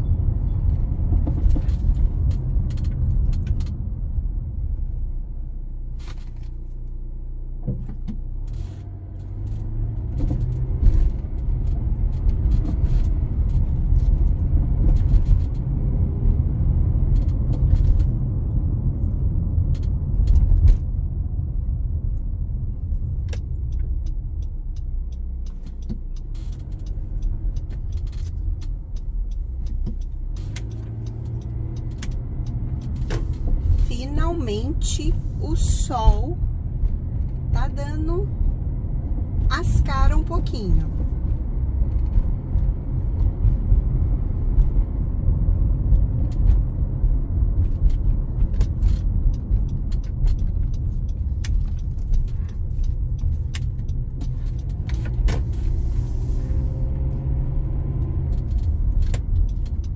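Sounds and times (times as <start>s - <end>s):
road and engine rumble: 0.0s - 59.9s
light clicks and rattles: 23.0s - 34.6s, 45.9s - 55.7s, 56.5s - 59.9s.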